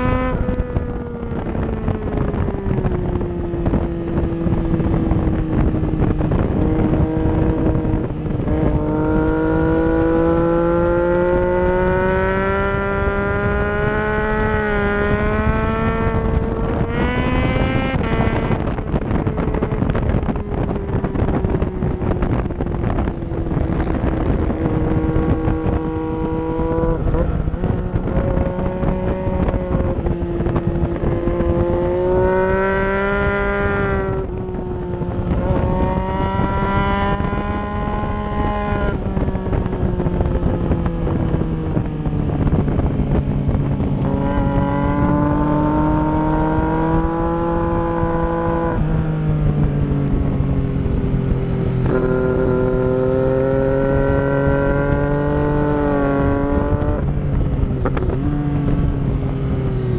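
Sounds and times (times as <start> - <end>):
motorcycle engine revving: 0.0 - 59.9
wind rushing over microphone: 0.0 - 59.9.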